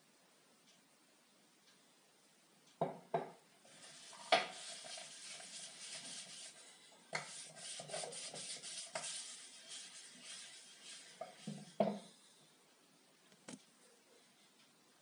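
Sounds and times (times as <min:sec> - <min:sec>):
cloth rubbing wooden board: 0:03.7 - 0:06.6, 0:07.2 - 0:12.0.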